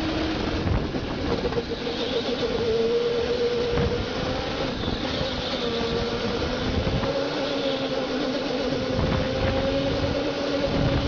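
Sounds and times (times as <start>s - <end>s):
kart rolling rumble: 0.0s - 11.0s
electric motor whining: 0.1s - 11.0s.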